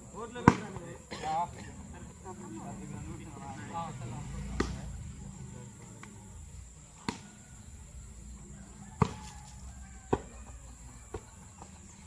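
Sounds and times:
volleyball being struck: 9.0 - 9.2.

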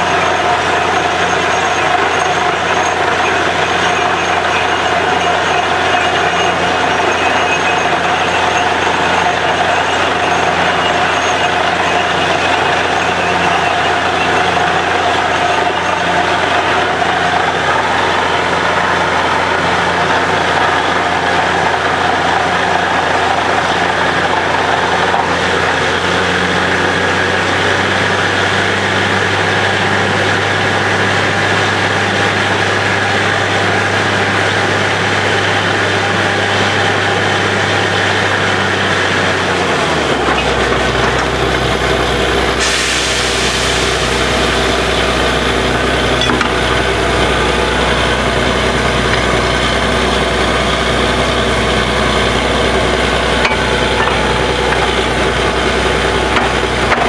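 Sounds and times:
diesel engine drone: 0.0 - 57.0
slurry hissing and spattering: 42.6 - 44.8.

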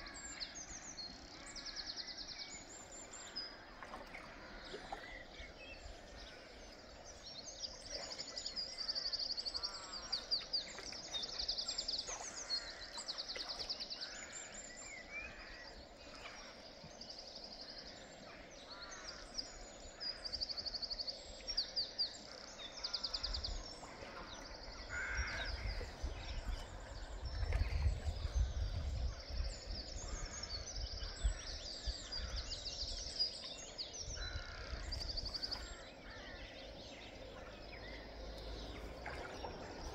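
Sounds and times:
shallow river flowing: 0.0 - 39.9
small birds trilling: 21.8 - 39.9
lower bird calls: 22.2 - 39.9.

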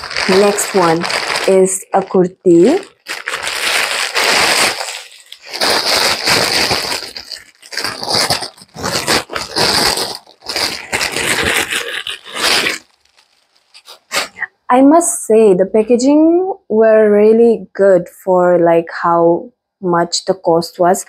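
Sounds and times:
plastic bag crinkling: 0.0 - 14.4.

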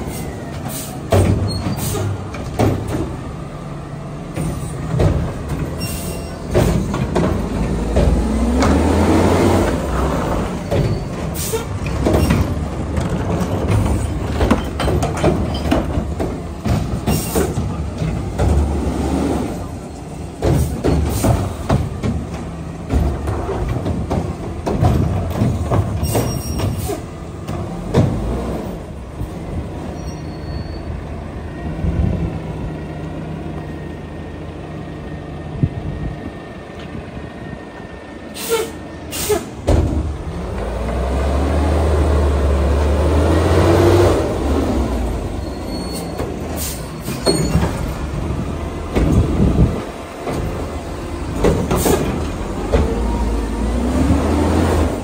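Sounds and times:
air brake hisses: 1.7 - 2.2, 26.1 - 27.1, 38.3 - 39.6, 46.0 - 47.2
diesel truck engine revving: 7.0 - 10.7, 17.4 - 22.0, 38.5 - 45.7, 47.8 - 55.0.

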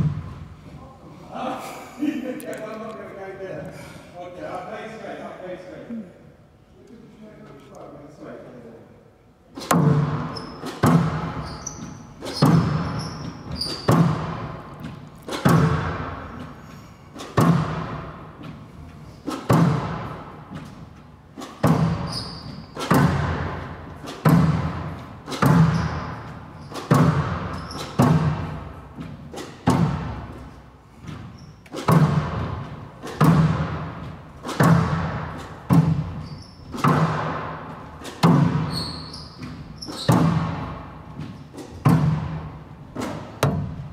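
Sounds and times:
squash ball smacks: 9.6 - 11.5, 12.2 - 16.5, 17.2 - 18.2, 19.2 - 20.8, 21.4 - 26.1, 26.7 - 30.5, 31.1 - 38.7, 39.9 - 43.9
shoes squeaking on court: 10.2 - 15.5, 21.5 - 23.0, 25.0 - 29.6, 30.3 - 31.9, 35.4 - 36.9, 38.0 - 41.9.

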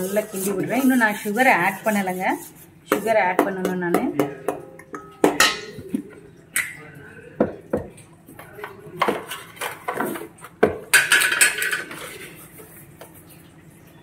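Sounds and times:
spoon scraping a pan: 0.0 - 4.4, 9.0 - 12.9
spoon stirring in a steel pan: 0.0 - 6.2, 8.3 - 13.3.

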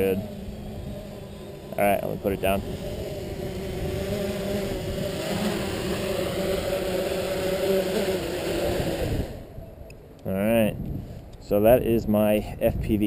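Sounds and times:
drone motors and propellers humming: 0.0 - 10.3.

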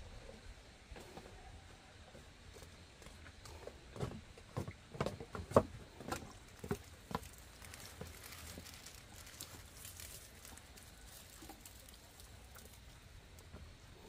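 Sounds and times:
water sprinkling onto leaves: 6.4 - 13.5.

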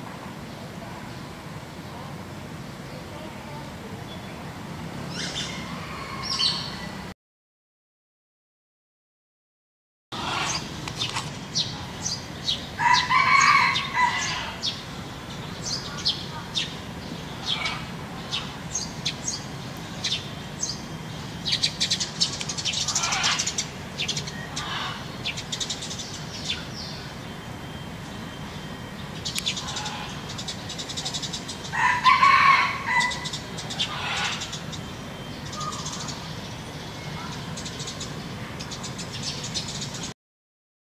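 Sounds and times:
small birds chirping: 0.5 - 7.0, 10.2 - 40.1
peafowl calling loudly: 5.1 - 6.9, 10.2 - 11.9, 12.6 - 14.9, 17.3 - 19.2, 19.9 - 26.7, 29.2 - 36.2.

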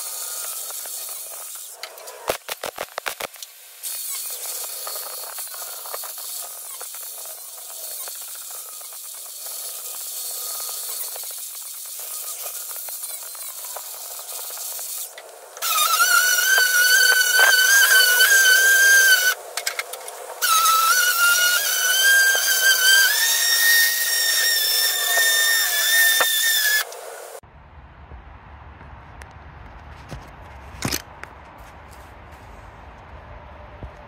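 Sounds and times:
angle grinder grinding metal: 0.0 - 27.4
cordless tool high-pitched whine: 0.0 - 27.4.

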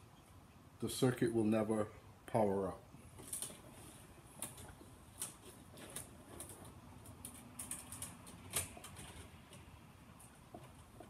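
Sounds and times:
copper cable clicking and rattling: 4.4 - 11.0.

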